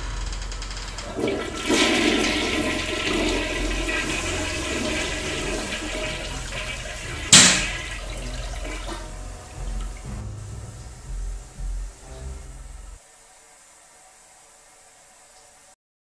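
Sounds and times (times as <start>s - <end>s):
sharp bang: 0.0s - 12.8s
toilet flushing: 0.8s - 12.7s.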